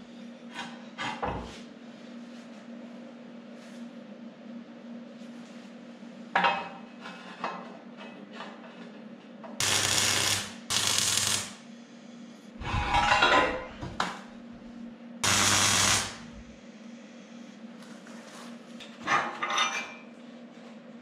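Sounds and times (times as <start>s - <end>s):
welder arc crackling and hissing: 9.6s - 11.7s, 15.2s - 16.6s.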